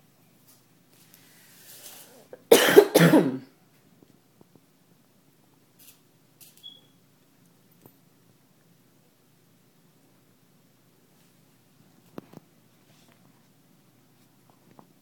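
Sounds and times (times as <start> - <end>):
person coughing: 2.3 - 3.5.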